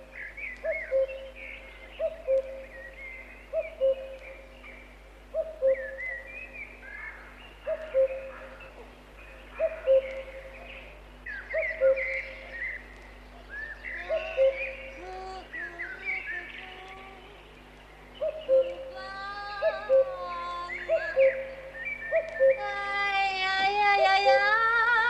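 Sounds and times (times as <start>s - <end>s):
cuckoo calling: 0.0s - 25.0s
small birds chirping: 0.0s - 25.0s.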